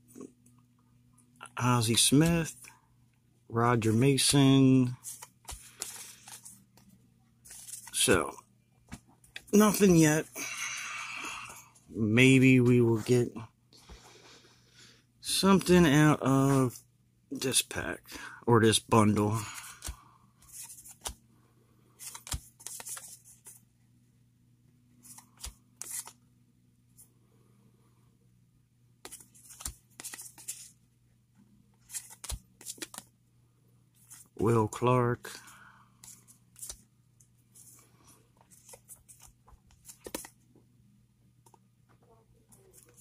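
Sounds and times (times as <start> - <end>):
faint steady hum: 0.0 - 43.0
cards rustling and swishing: 3.8 - 10.2, 18.9 - 21.2, 21.9 - 23.7, 25.0 - 26.2, 29.0 - 30.8, 31.7 - 33.1, 34.0 - 34.5, 36.0 - 40.4, 42.5 - 43.0.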